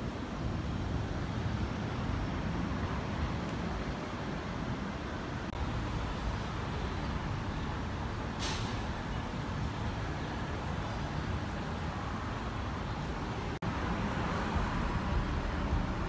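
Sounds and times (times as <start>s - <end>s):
city traffic rumble: 0.0s - 16.0s
brief hiss: 8.3s - 8.9s.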